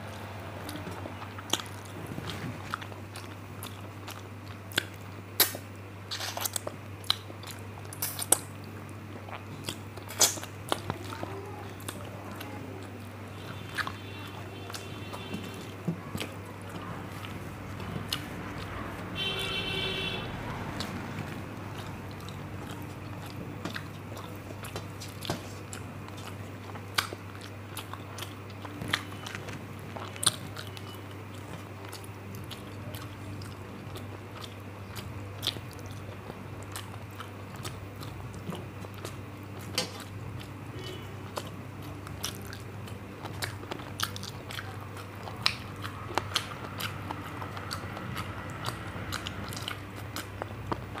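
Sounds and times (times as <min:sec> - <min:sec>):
chewing: 0:00.0 - 0:51.0
steady low hum: 0:00.0 - 0:51.0
wet mouth smacks: 0:04.8 - 0:06.6, 0:09.3 - 0:10.5.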